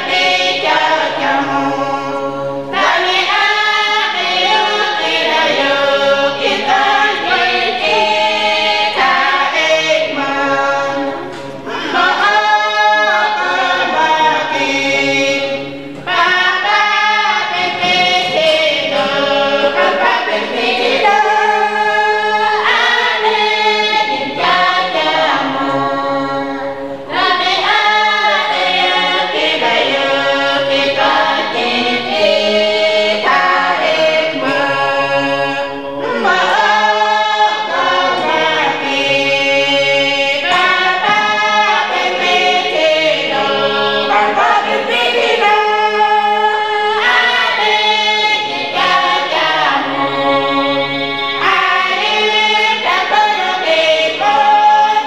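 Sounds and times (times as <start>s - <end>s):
group singing unaccompanied: 0.0s - 55.0s.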